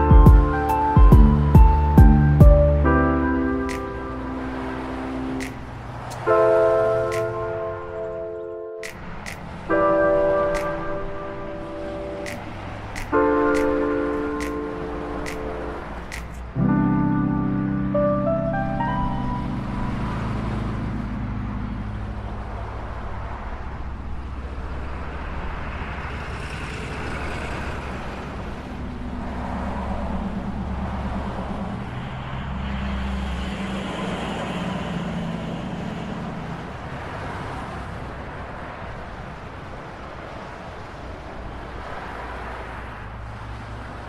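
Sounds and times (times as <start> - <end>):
surf washing on shore: 22.4 - 44.0.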